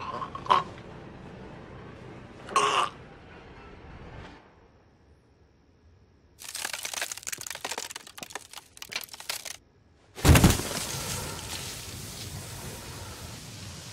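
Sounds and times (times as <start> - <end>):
crisp cracks and crackles: 6.4 - 9.6.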